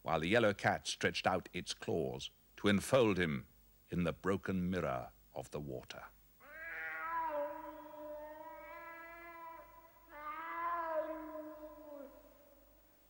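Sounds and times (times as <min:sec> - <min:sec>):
cat meowing: 0:06.5 - 0:12.2.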